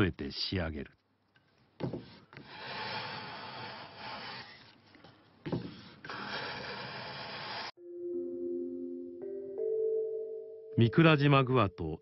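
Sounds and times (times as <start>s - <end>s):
hand plane shaving wood: 2.0s - 4.8s, 5.5s - 7.7s.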